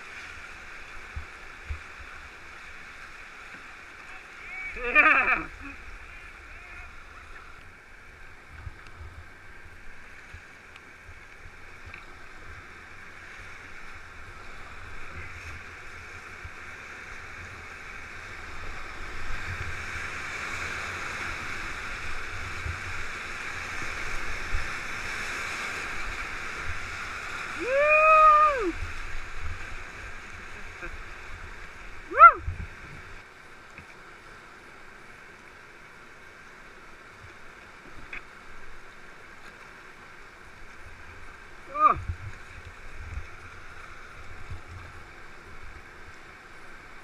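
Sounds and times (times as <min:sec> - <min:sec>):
whitewater rapids rushing: 0:00.0 - 0:08.0, 0:16.9 - 0:33.1
person shouting: 0:04.1 - 0:05.5, 0:27.6 - 0:28.8, 0:32.1 - 0:32.5, 0:41.7 - 0:42.0.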